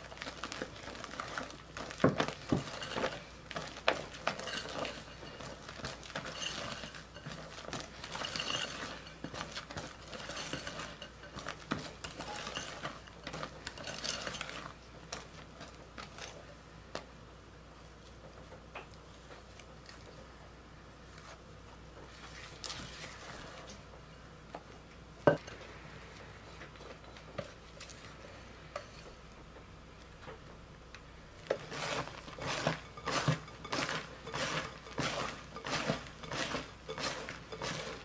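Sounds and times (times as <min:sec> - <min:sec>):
whisk clinking and scraping glass: 0:00.1 - 0:15.3, 0:31.5 - 0:38.0.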